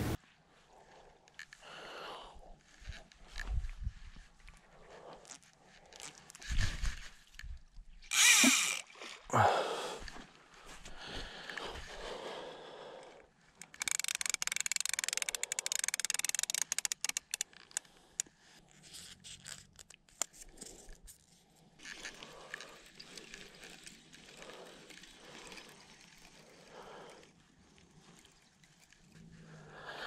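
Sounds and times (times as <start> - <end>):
rapid crackles and clicks: 13.6 - 18.3.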